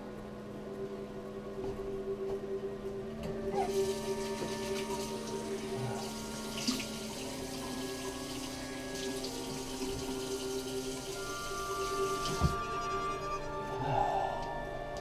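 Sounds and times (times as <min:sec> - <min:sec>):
sustained music score tones: 0:00.0 - 0:15.0
tap water running into sink: 0:03.7 - 0:12.7.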